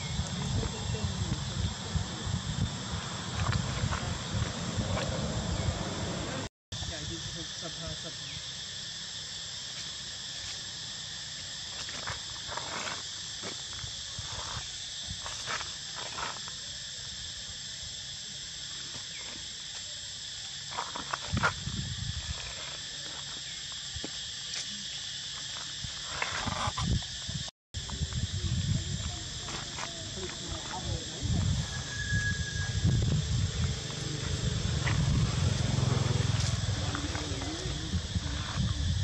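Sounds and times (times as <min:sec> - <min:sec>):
insects shrilling: 0:06.8 - 0:39.0.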